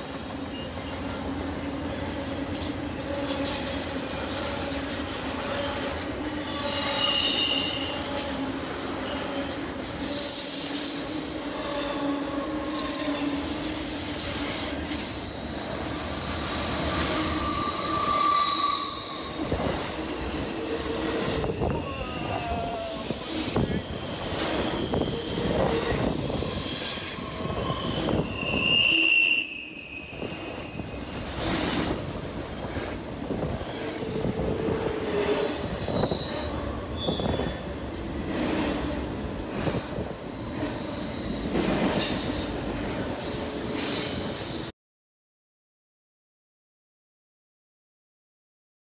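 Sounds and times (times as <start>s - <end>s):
train wheels squealing: 0.0s - 37.8s, 39.6s - 44.7s
train running on rails: 0.0s - 44.7s
high squealing tones: 15.2s - 30.9s.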